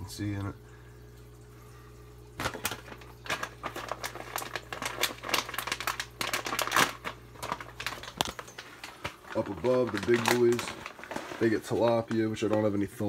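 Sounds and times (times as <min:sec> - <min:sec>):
steady low hum: 0:00.0 - 0:13.0
clicking and crinkling: 0:02.4 - 0:12.8.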